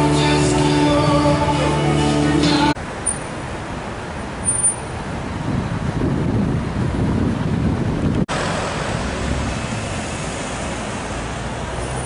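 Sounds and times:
road traffic noise: 0:00.0 - 0:12.0
wind rumbling on microphone: 0:04.2 - 0:12.0.

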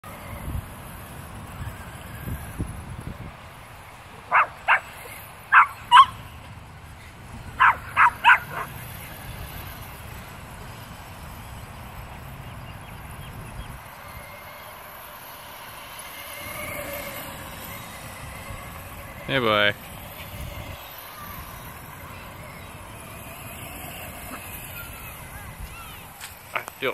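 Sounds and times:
electric motor whine: 0:00.0 - 0:26.9
small dog yapping: 0:04.3 - 0:04.9, 0:05.5 - 0:06.2, 0:07.6 - 0:08.8.

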